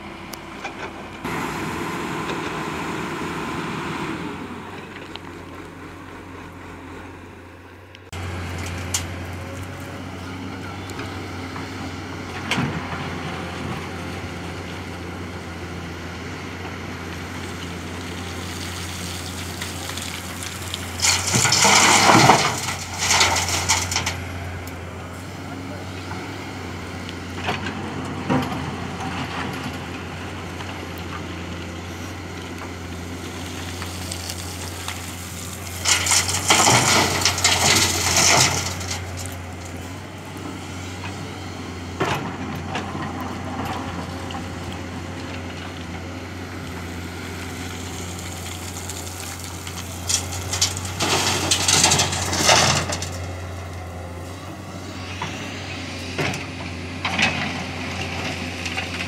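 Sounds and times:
excavator engine running: 0.0 - 59.0
sand and stones pouring into steel truck: 17.7 - 24.4, 33.0 - 39.8, 46.8 - 53.9.

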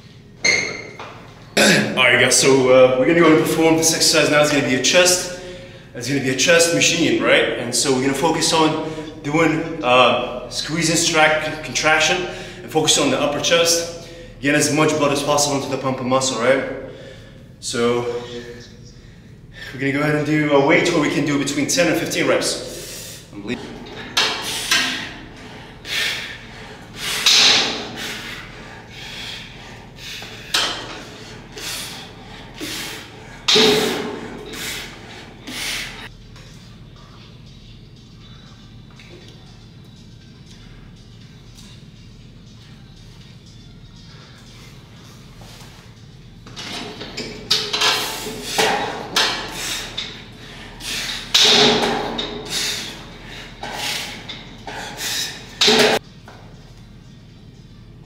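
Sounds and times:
forceful breaths: 22.6 - 36.1, 47.8 - 56.0
exercise machine metal clanking: 23.5 - 25.8, 27.0 - 28.2, 30.4 - 31.7, 33.4 - 34.6, 46.5 - 56.0.

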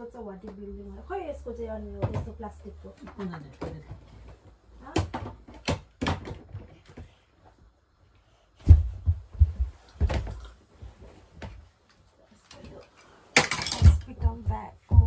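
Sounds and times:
knocks and thuds of tent parts: 3.6 - 7.2, 8.6 - 10.5.

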